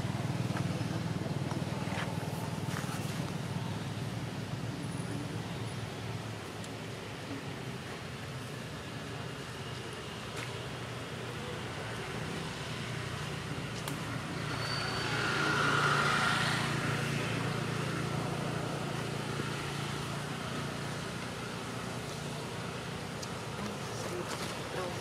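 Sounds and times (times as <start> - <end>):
motor vehicle passing: 14.2 - 19.0.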